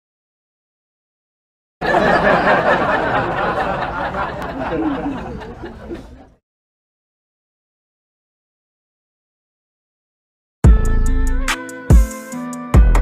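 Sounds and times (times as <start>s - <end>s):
people laughing: 1.8s - 6.4s.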